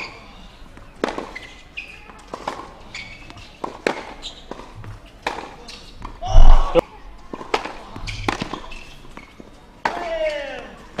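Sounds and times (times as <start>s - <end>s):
racket hitting tennis ball: 1.0s - 1.5s, 2.1s - 10.1s
tennis ball bouncing: 1.0s - 10.0s.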